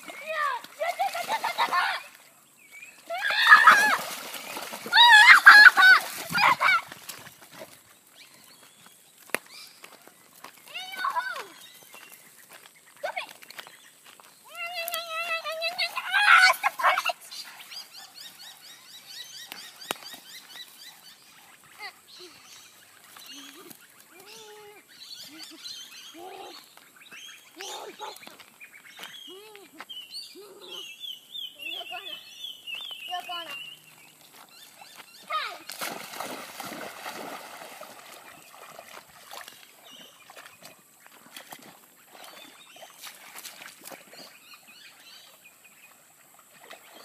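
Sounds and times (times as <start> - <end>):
birds chirping faintly: 0.0 - 47.0
child shrieking excitedly: 3.1 - 4.0, 4.9 - 6.9, 15.0 - 17.2.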